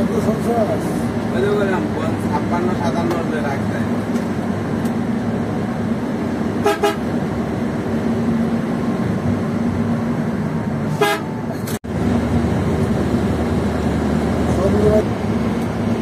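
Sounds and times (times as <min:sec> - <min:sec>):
bus diesel engine droning: 0:00.0 - 0:16.0
bus horn toots: 0:06.6 - 0:07.1, 0:10.9 - 0:11.8.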